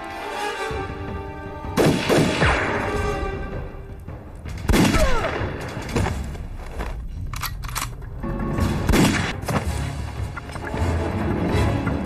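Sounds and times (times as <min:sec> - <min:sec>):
background music: 0:00.0 - 0:12.0
loud gunshots: 0:01.8 - 0:02.9, 0:04.7 - 0:05.6.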